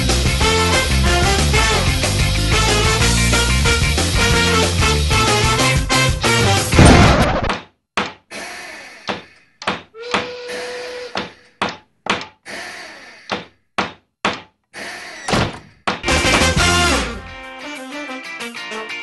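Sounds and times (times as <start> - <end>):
sharp knocks with ringing: 13.3 - 14.5.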